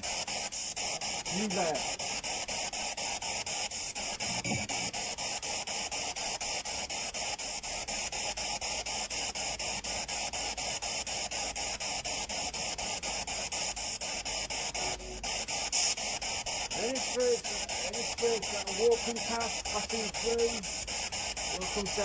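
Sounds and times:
radio static sweeping: 0.0 - 5.8, 9.7 - 22.0.

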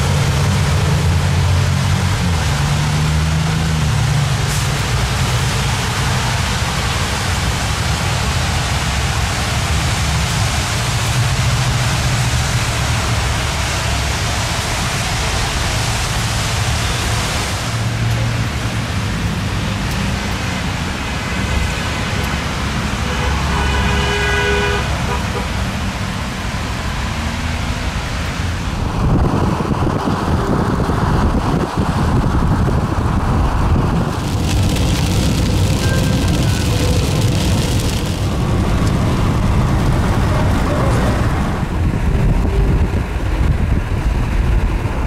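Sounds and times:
tyre and wind noise: 28.1 - 45.0
brief pitched tone: 35.8 - 37.1, 42.2 - 43.1.

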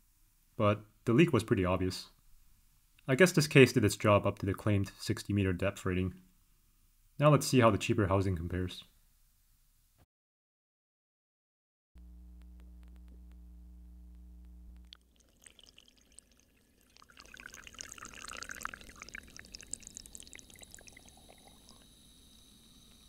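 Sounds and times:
steady low hum: 12.0 - 15.0
water pouring and splashing: 14.9 - 22.0.

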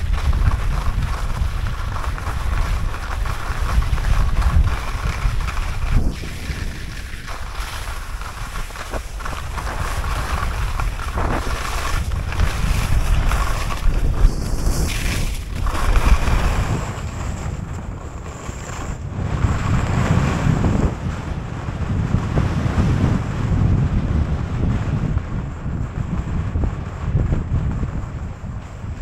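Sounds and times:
wind buffeting microphone: 0.0 - 29.0.

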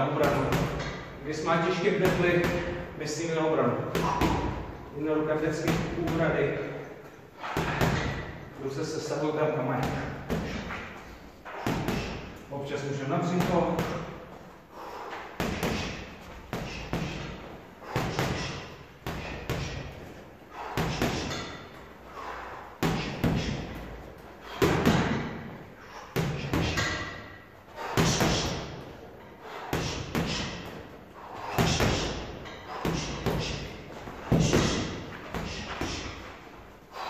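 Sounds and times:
boxing gloves punching heavy bag: 3.9 - 4.7, 7.4 - 8.4, 9.8 - 10.8, 11.5 - 12.4, 14.8 - 37.0.

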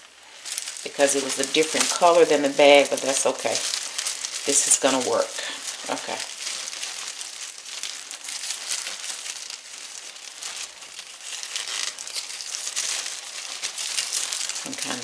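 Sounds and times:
plastic bag crinkling: 0.0 - 15.0.

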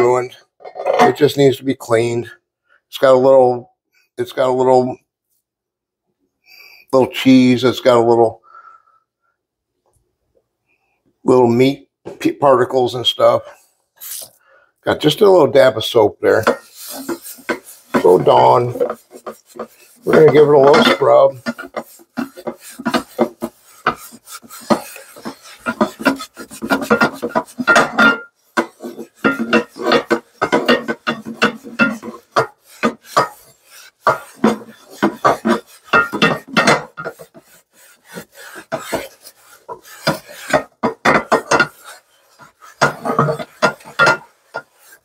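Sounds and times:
sponge scrubbing a skillet: 14.0 - 14.3, 15.0 - 45.0.

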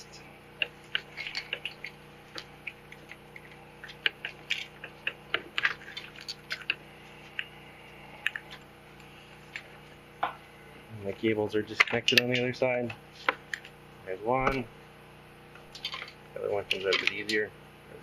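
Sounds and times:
metal parts clicking and tapping: 15.8 - 17.4.

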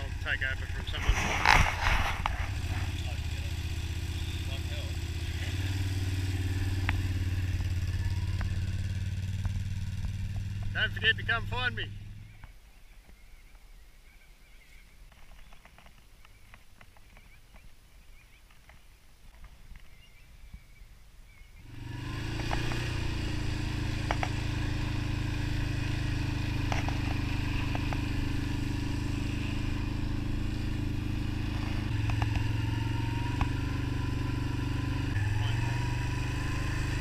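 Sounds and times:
quad bike engine running: 0.0 - 12.5, 21.5 - 37.0.

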